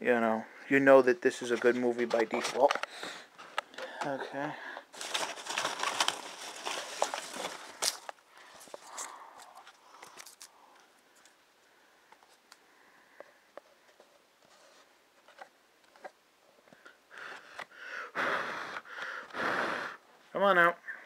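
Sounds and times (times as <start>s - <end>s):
rustling and scraping: 1.3s - 3.8s, 4.9s - 11.4s, 13.6s - 17.6s
packing peanuts and case clicking: 4.9s - 10.5s.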